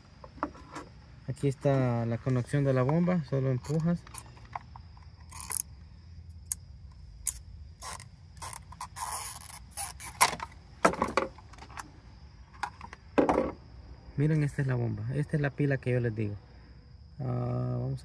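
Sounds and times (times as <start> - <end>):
plastic clicks and creaks: 7.3 - 11.9.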